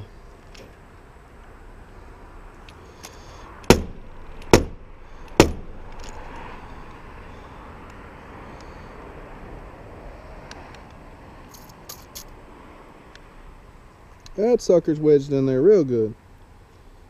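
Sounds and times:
nailer being struck: 3.7s - 5.7s.

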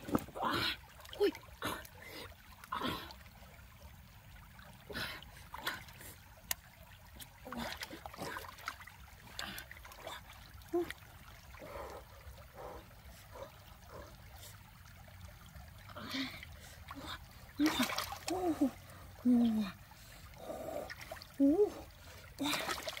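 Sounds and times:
stream trickling: 0.0s - 23.0s
water splashing from hands: 15.9s - 19.1s, 20.7s - 23.0s.

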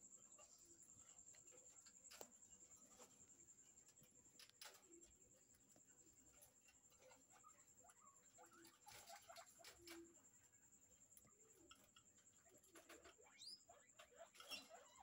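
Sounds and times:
guinea pig calls: 6.2s - 15.0s.

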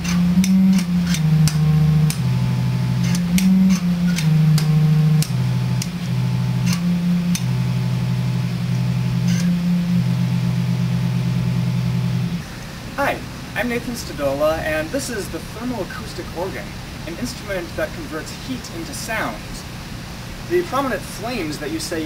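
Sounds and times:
organ playing low tones: 0.0s - 12.5s.

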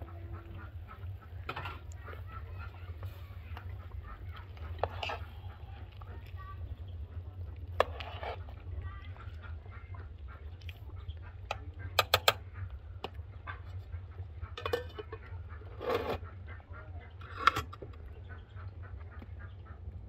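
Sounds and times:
farm animals calling: 0.0s - 20.0s.

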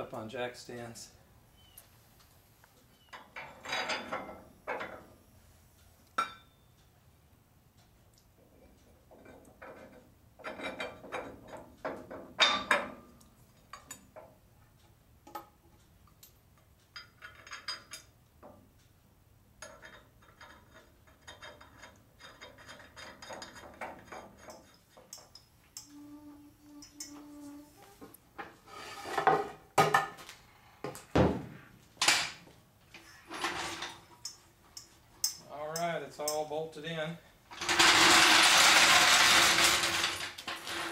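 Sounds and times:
steel hand tools clinking: 33.8s - 36.5s.

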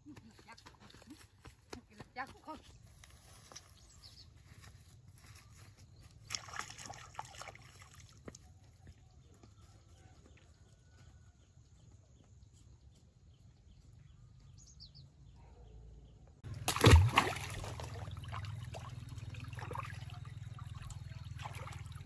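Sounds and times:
steady low rumble: 16.4s - 22.0s.

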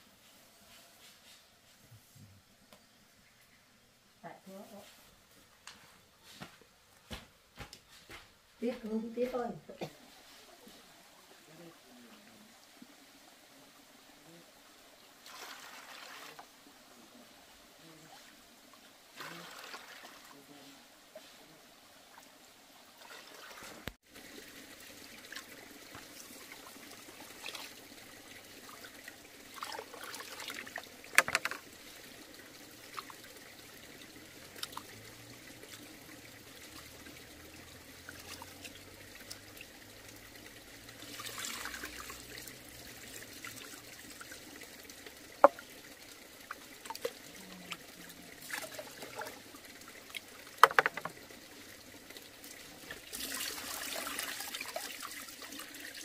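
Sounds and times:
water trickling: 8.6s - 56.0s
sharp knocks: 50.6s - 51.1s.

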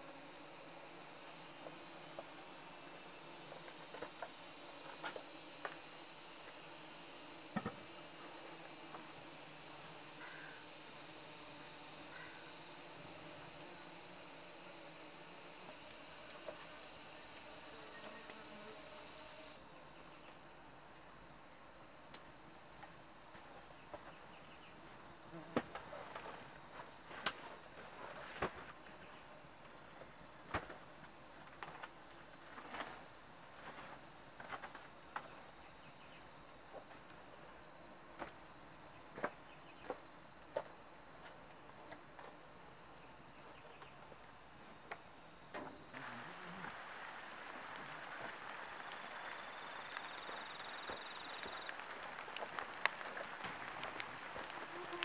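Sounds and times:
insects buzzing: 0.0s - 55.0s.

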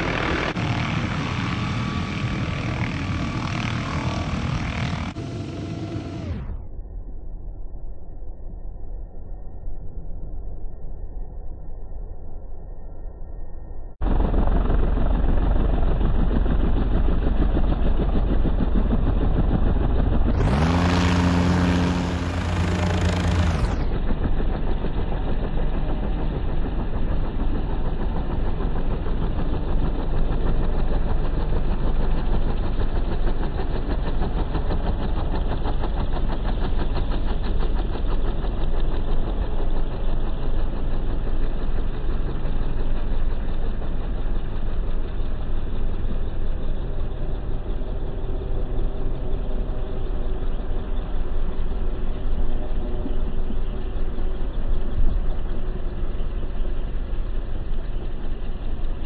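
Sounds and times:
helicopter engine and rotors: 0.0s - 59.0s
low steady multi-tone hum: 38.5s - 59.0s.

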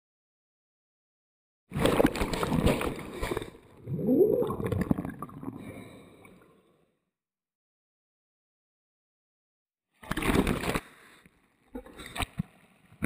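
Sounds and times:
sea water sloshing and gurgling: 1.7s - 6.8s, 10.0s - 11.2s.

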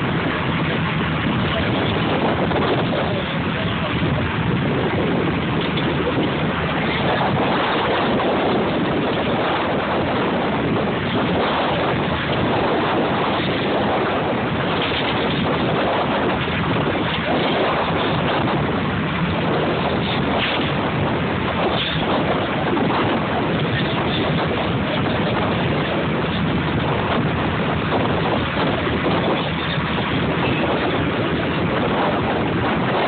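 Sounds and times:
water around a boat: 0.0s - 33.0s
wind rushing across microphone: 0.0s - 33.0s.

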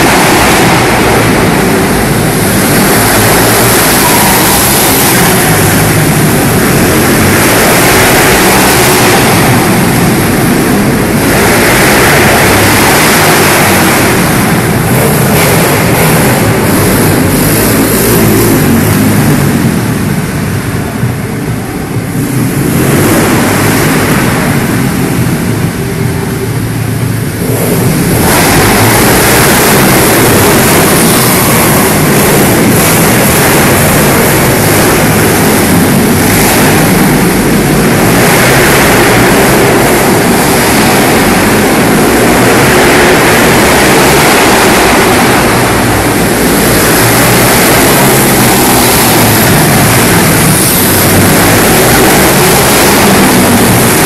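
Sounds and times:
motorbike engines revving: 0.0s - 54.0s.

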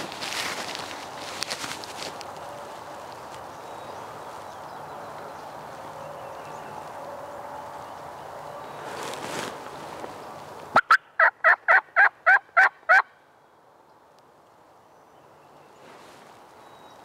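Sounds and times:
turkey yelps: 10.8s - 13.1s.

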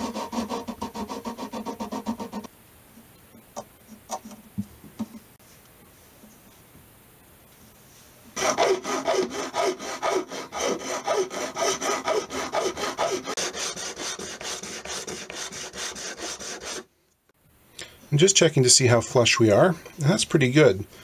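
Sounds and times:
hand sanding rasping strokes: 0.0s - 2.5s, 8.4s - 16.9s.

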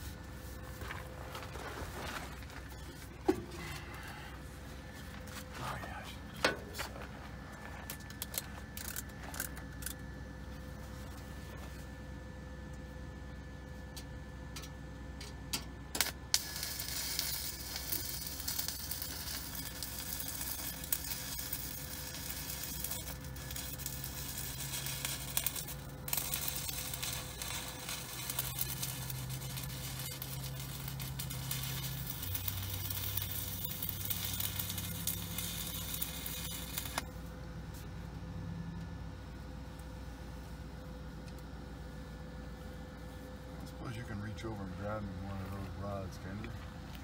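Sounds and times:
welding arc crackling sizzle: 0.0s - 11.8s, 13.9s - 38.0s
electrode striking arc crackles: 15.9s - 37.1s.

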